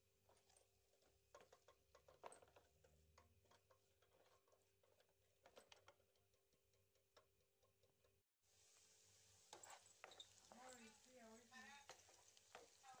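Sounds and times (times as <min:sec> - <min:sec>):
spatula scraping frying pan: 0:09.4 - 0:10.9, 0:11.5 - 0:13.0.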